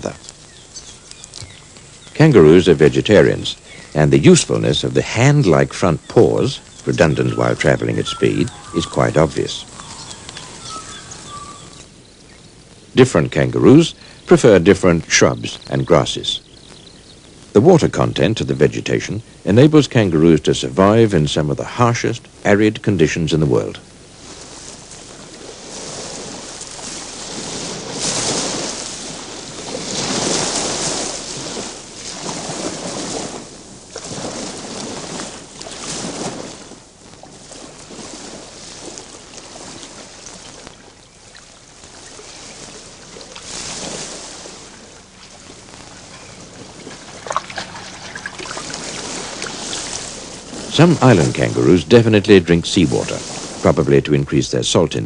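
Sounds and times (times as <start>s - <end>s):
surf washing on rocky shore: 0.0s - 12.1s, 17.3s - 55.0s.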